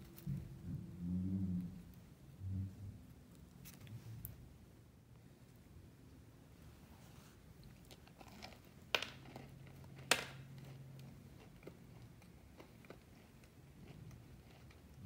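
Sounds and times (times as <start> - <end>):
cookie crust crackling: 7.4 - 15.0.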